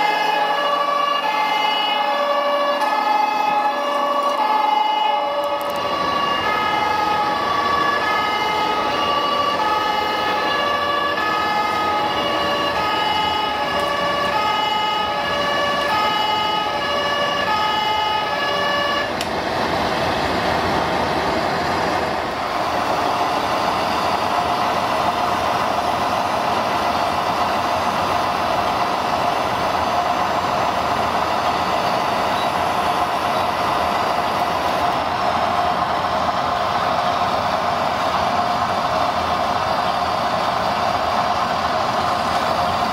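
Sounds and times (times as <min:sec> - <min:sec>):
two-tone siren: 0:00.0 - 0:19.2.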